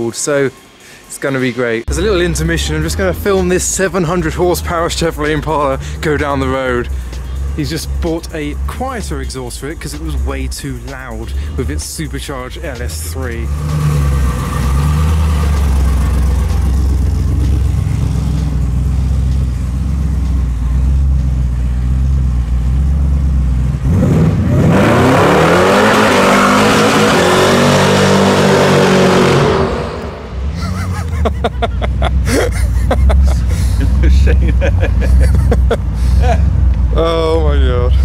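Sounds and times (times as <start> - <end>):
car engine idling and revving: 1.8 - 38.0
tyres spinning in a burnout: 11.6 - 20.1, 22.0 - 38.0.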